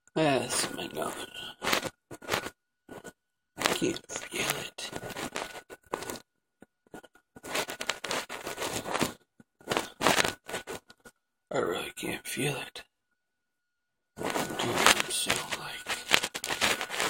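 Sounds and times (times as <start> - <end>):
fingers rubbing skin near microphone: 0.6 - 6.2, 6.9 - 11.1, 14.2 - 17.0.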